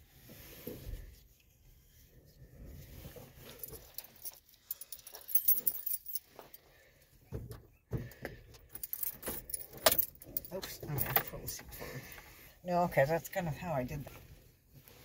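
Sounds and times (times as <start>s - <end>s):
keys jingling: 3.5s - 6.6s, 8.6s - 11.6s.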